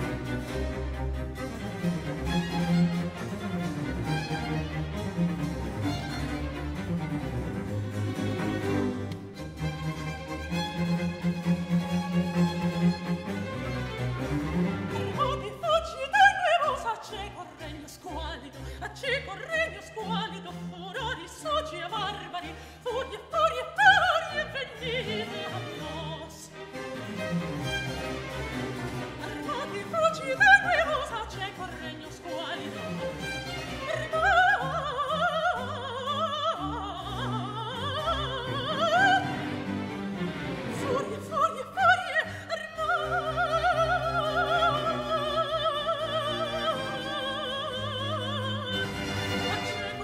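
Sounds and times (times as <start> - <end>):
bowed strings: 0.0 - 50.0
soprano singing aria: 12.9 - 50.0.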